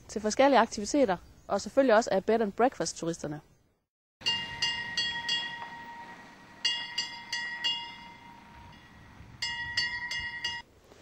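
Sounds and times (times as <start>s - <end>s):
bell-like tone struck: 4.2s - 10.6s.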